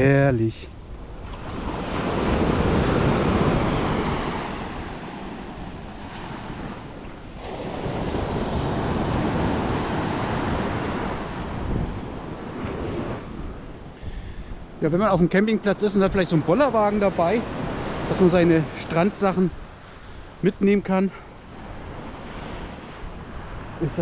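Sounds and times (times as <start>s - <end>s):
wind on microphone: 0.7s - 14.8s
small waves breaking on shore: 0.7s - 24.0s.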